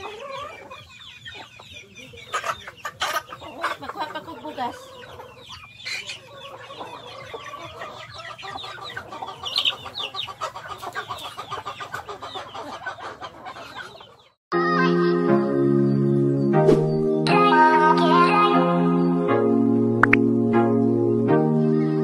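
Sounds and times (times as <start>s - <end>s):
chickens and ducks clucking: 0.0s - 14.4s
background music: 14.5s - 22.0s.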